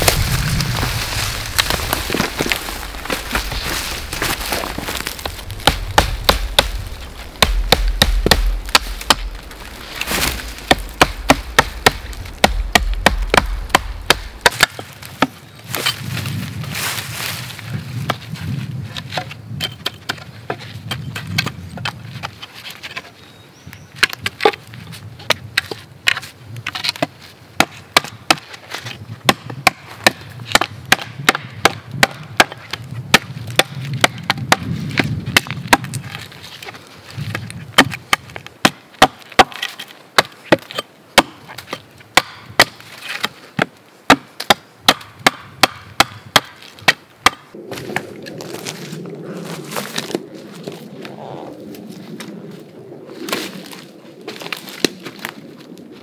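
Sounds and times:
firewood being chopped: 0.0s - 16.1s, 24.0s - 24.6s, 25.2s - 36.3s, 37.2s - 48.8s.

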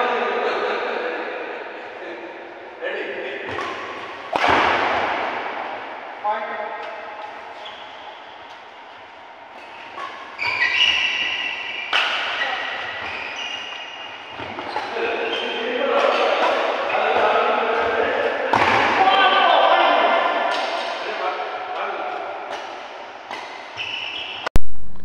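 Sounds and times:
court shoes squeaking: 3.4s - 5.9s, 6.8s - 19.0s, 20.4s - 21.1s, 22.1s - 24.5s
racket striking shuttlecock: 3.5s - 5.8s, 11.8s - 12.4s.

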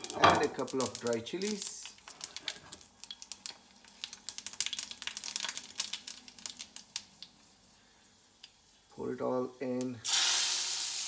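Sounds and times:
seeds popping in hot oil: 0.0s - 7.7s.

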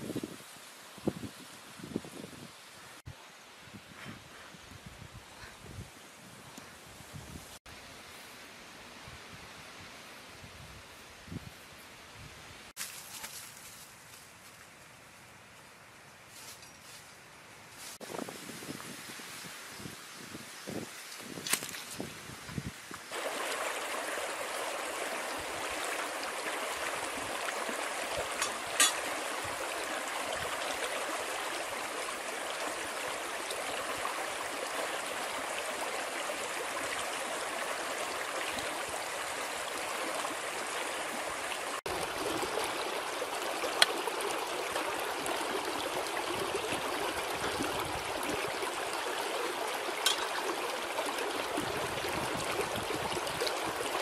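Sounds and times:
stream rushing: 23.0s - 54.0s.

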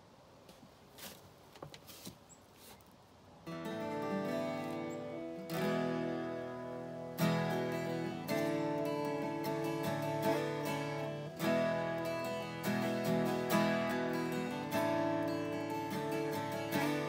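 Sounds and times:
acoustic guitar strummed chords: 3.4s - 17.0s.

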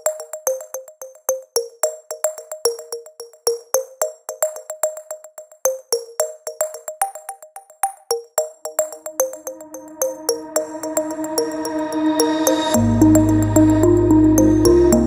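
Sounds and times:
crisp ticking percussion: 0.0s - 15.0s
plucked synthesizer notes: 12.8s - 15.0s.

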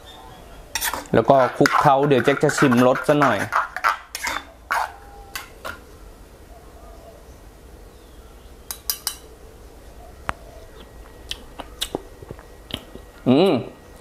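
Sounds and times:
faint low hum: 0.0s - 14.0s
metal spoon clinking: 0.8s - 5.8s, 8.7s - 9.3s.

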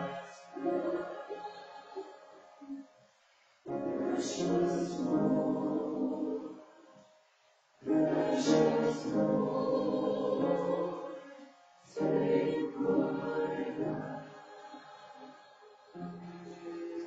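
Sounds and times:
church choir singing: 0.0s - 3.0s, 3.7s - 7.2s, 7.8s - 17.0s.

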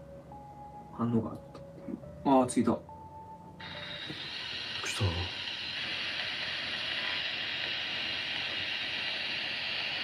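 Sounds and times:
radio static hiss: 3.6s - 10.0s.

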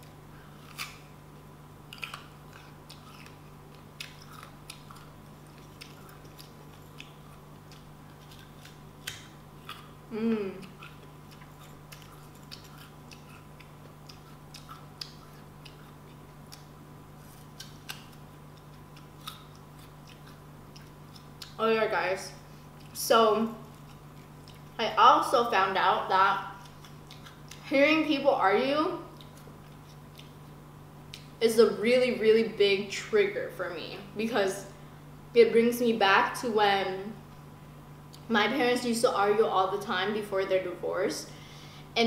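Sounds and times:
crunchy fruit chewing: 0.0s - 28.3s, 28.9s - 31.4s
wet mouth clicks: 1.9s - 16.7s
person humming: 10.1s - 10.9s.

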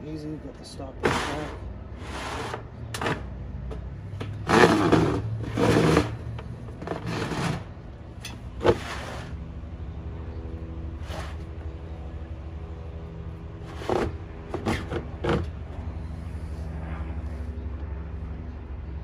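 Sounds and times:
steady low hum: 0.0s - 19.0s
plastic tubs scraping on wood: 1.0s - 3.3s, 4.2s - 7.8s, 8.6s - 9.4s, 13.7s - 15.5s.

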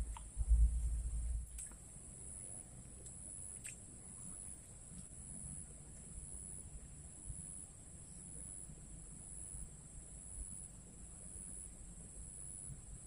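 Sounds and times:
low rumble: 0.0s - 1.6s
insect chorus: 0.0s - 13.0s.

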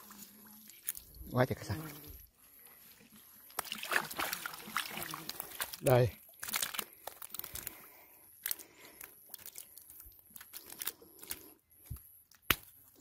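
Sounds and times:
fish flopping in wet mud: 3.4s - 11.5s.

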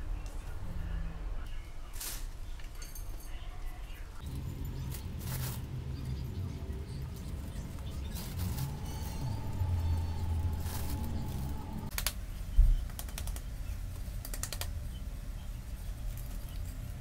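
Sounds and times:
low hum: 4.2s - 11.9s.

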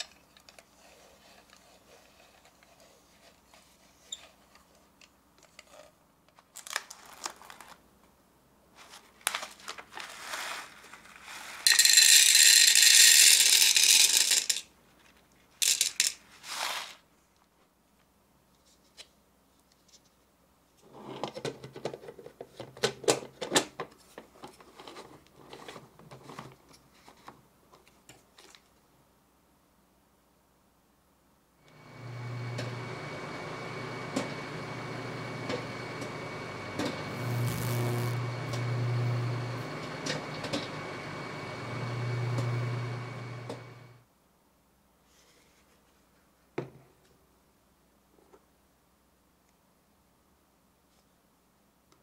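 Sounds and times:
popcorn kernels rattling in plastic: 9.5s - 14.7s, 15.6s - 17.0s.

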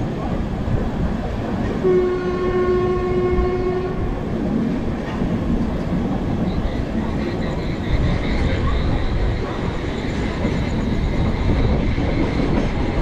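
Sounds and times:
moving train rumble: 0.0s - 13.0s
train horn: 1.8s - 4.2s.

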